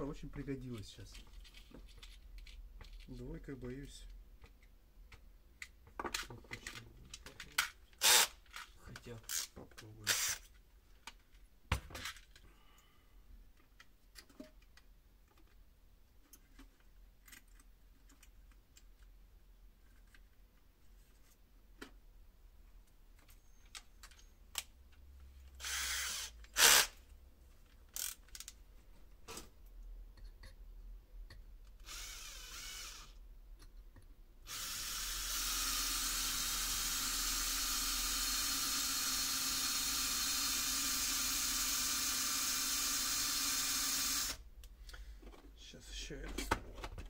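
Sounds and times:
small electric drill running: 8.0 - 8.4, 10.1 - 10.4, 25.6 - 27.0, 31.8 - 33.2, 34.5 - 44.4
clicks and handling knocks: 46.2 - 47.0.

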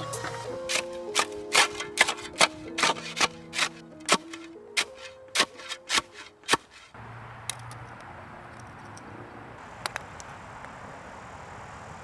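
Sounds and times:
outdoor background hiss: 6.3 - 12.0.

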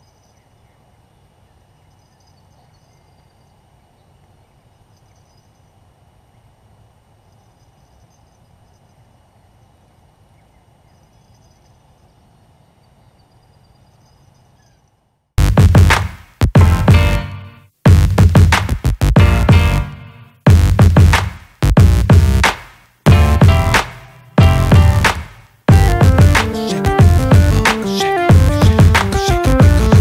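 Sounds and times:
steady low rumble: 17.9 - 18.6, 20.5 - 22.4, 23.1 - 23.8, 24.4 - 26.4, 27.0 - 27.7.

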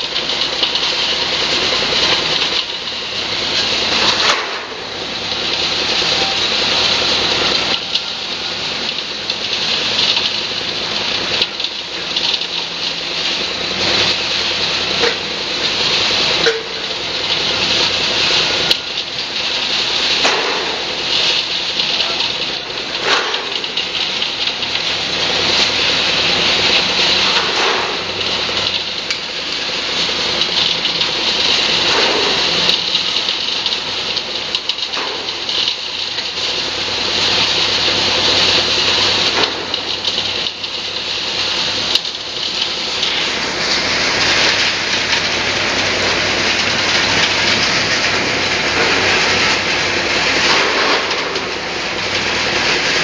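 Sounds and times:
machine noise: 0.0 - 53.0
rushing water: 0.0 - 53.0.

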